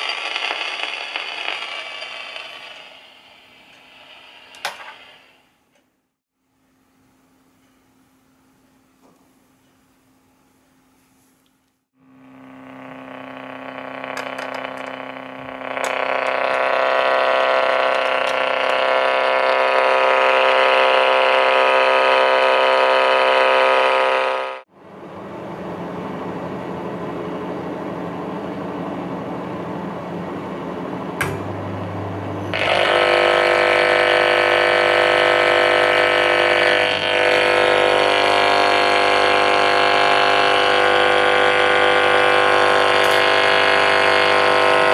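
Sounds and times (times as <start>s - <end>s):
radio interference buzz: 0.0s - 5.5s, 12.0s - 24.7s, 31.2s - 44.9s
deep hum: 12.0s - 44.9s.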